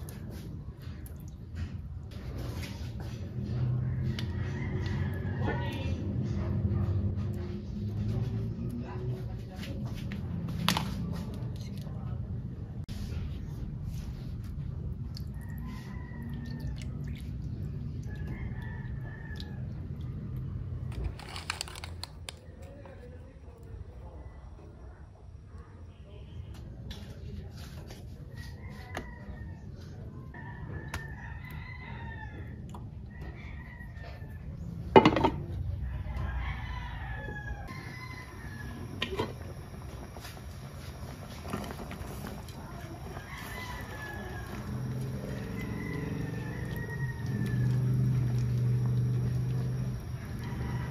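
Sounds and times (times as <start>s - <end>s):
rooster crowing: 3.5s - 6.0s, 15.4s - 17.0s, 18.0s - 19.8s, 28.4s - 34.5s, 36.0s - 50.9s.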